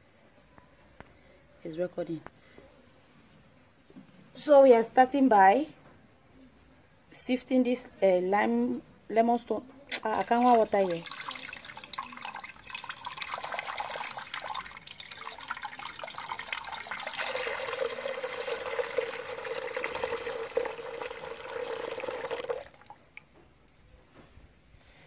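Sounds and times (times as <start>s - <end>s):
water splashing into a pot: 9.9s - 23.3s.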